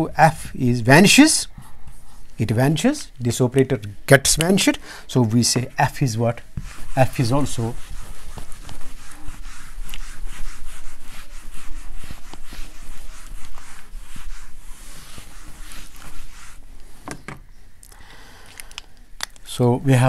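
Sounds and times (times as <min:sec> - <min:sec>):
eraser scrubbing whiteboard: 0:05.6 - 0:17.0.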